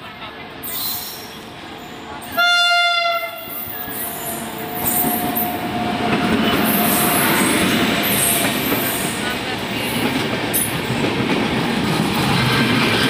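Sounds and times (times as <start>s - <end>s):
train wheels rumbling on rail: 0.0s - 13.0s
train horn blast: 2.4s - 3.6s.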